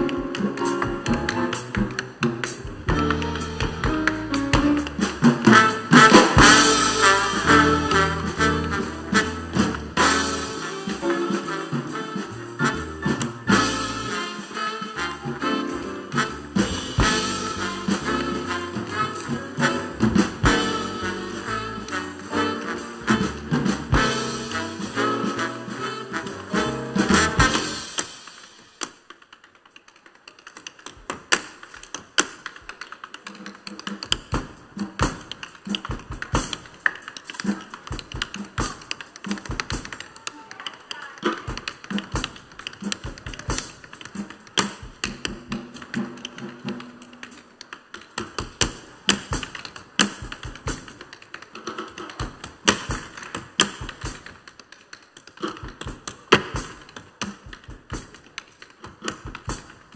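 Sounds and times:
tap shoes on wooden stage: 0.0 - 6.5, 28.8 - 59.9
band playing soft notes: 0.0 - 28.9.

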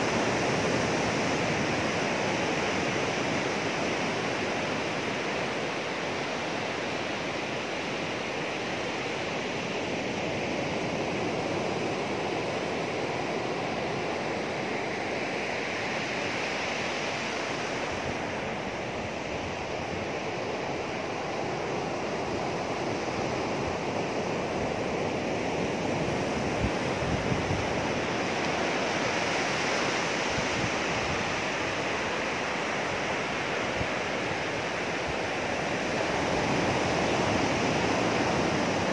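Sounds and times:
surf washing onto sandy beach: 0.0 - 38.9
wind buffeting microphone: 17.4 - 32.2.

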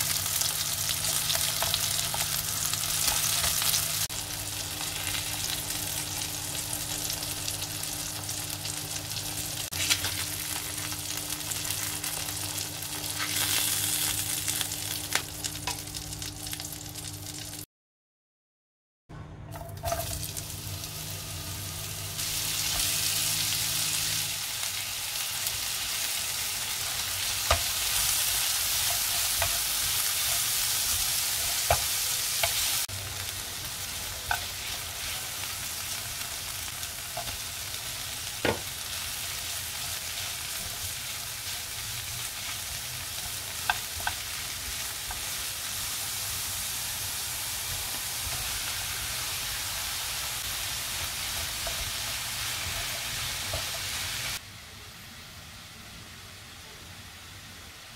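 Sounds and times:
vegetables sizzling in a frying pan: 0.0 - 17.6, 19.8 - 57.9.

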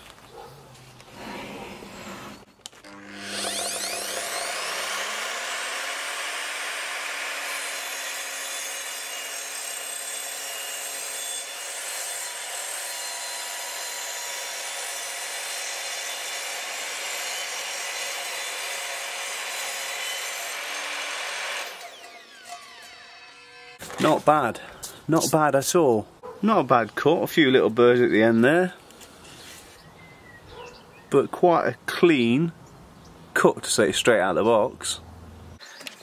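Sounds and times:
mitre saw cutting wood: 1.2 - 24.4
saw blade spinning down: 2.0 - 11.5.

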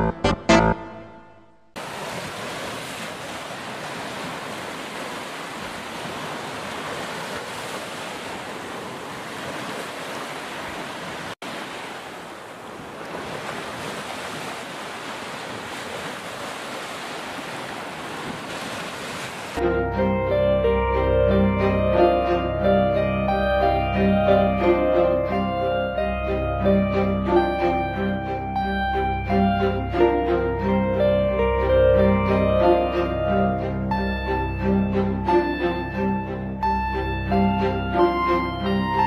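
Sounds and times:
sea waves washing onto beach: 1.8 - 19.6.

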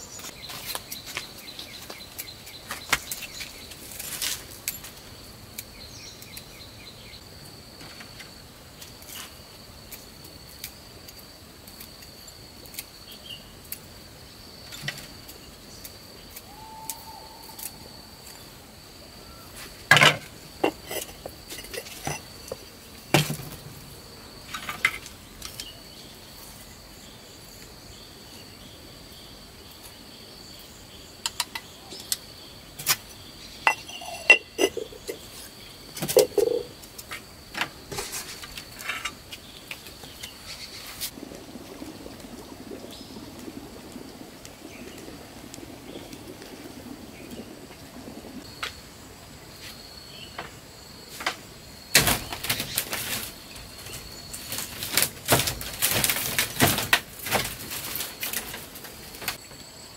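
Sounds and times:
high-pitched insect trill: 30.1 - 41.1.

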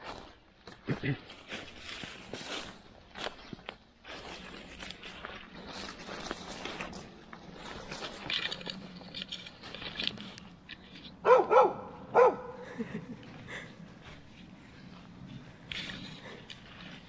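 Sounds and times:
footsteps through dry leaves: 0.0 - 11.9
hound barking: 11.2 - 12.6.

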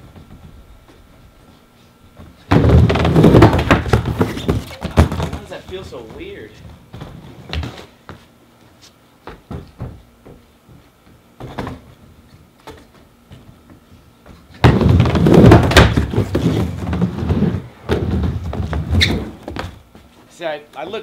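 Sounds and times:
skateboard wheels rumbling on plywood: 2.1 - 8.3, 12.8 - 20.1
skateboard knocking on ramp: 2.5 - 6.3, 14.6 - 19.8.

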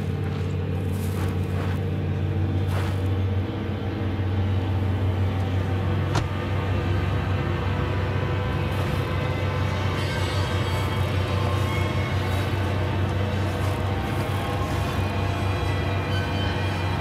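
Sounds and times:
footsteps crunching in snow: 0.0 - 3.4, 8.6 - 17.0.

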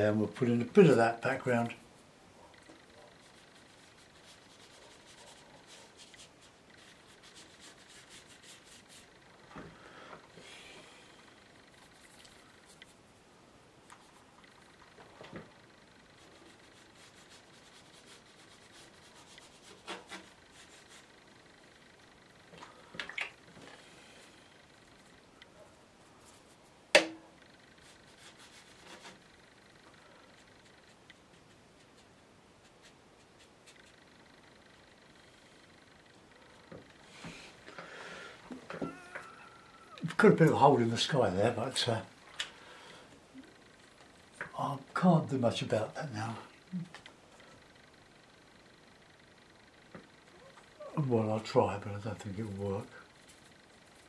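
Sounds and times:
paintbrush scratching paper: 2.8 - 9.4, 11.6 - 13.2, 15.6 - 22.0, 26.1 - 26.8, 27.5 - 34.8, 51.7 - 54.0
small scrapes and taps: 19.3 - 20.3.

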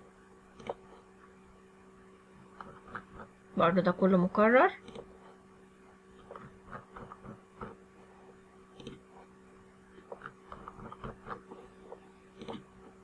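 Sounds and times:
low electrical hum: 0.0 - 13.0
computer mouse clicks: 0.5 - 1.0, 4.8 - 5.1, 8.7 - 9.0, 10.0 - 12.8.

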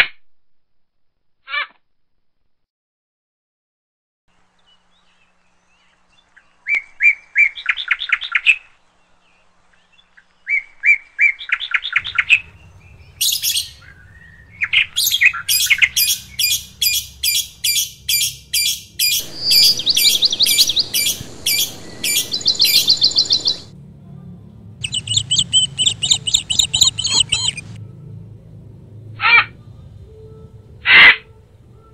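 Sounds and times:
lovebird chirping: 11.4 - 23.7, 24.8 - 27.8.

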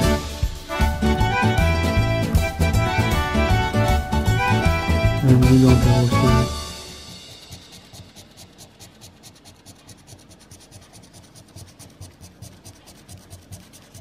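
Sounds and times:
coin scraping scratch-off ticket: 5.2 - 14.0.

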